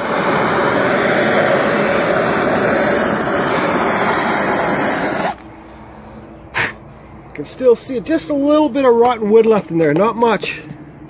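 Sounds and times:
gas torch hissing: 0.0 - 8.8.

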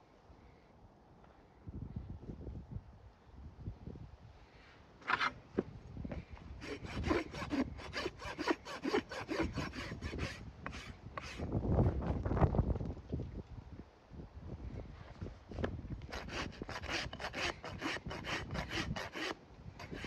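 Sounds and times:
rasp scraping horse hoof: 5.0 - 5.4, 6.6 - 11.5, 16.1 - 20.0.

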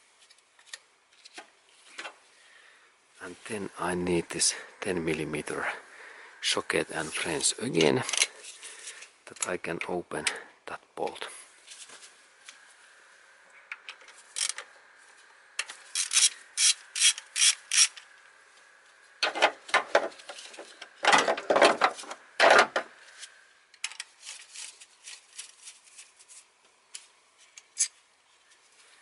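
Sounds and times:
ratchet wrench clicking: 15.9 - 18.0.

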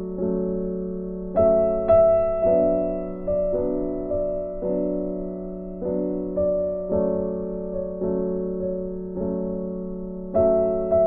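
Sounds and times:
soft piano chords: 0.0 - 11.0.

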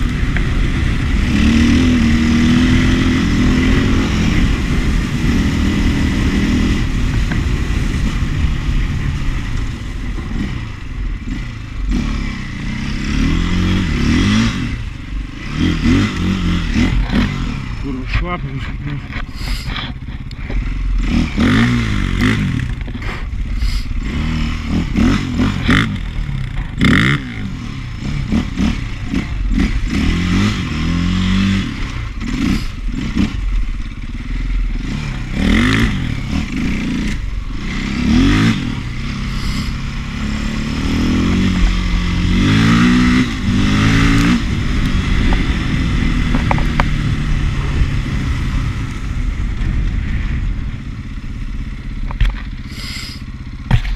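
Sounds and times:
dirt bike engine revving: 0.0 - 53.9
bike rattling over rough ground: 12.6 - 53.9.

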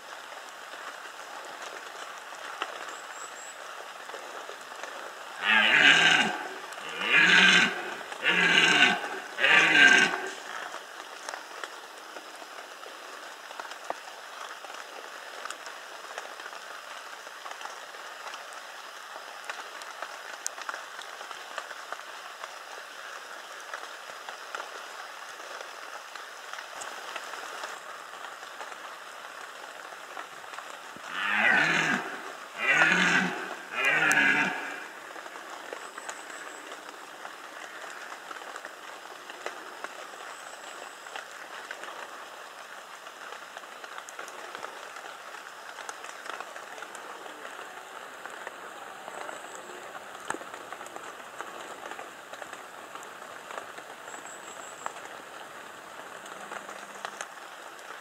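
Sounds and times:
deer stag roaring: 5.4 - 10.6, 31.1 - 35.1.

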